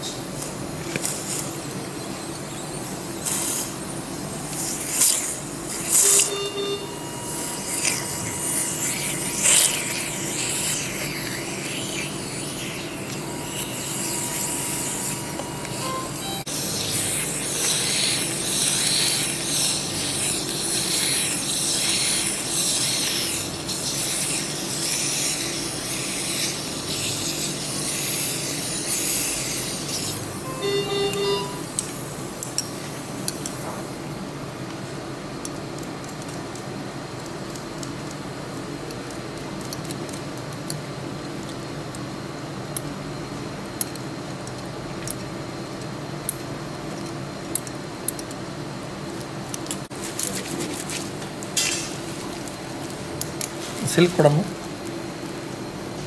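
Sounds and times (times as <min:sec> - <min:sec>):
hum of medical equipment: 0:00.0 - 0:56.0
surgical suction hissing: 0:02.7 - 0:32.0
short beep: 0:06.0 - 0:07.1, 0:15.2 - 0:16.5, 0:30.4 - 0:31.8.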